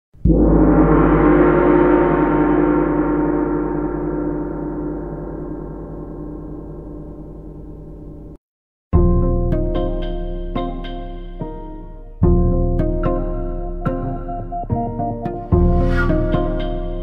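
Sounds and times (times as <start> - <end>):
gong ringing: 0.2 - 8.4.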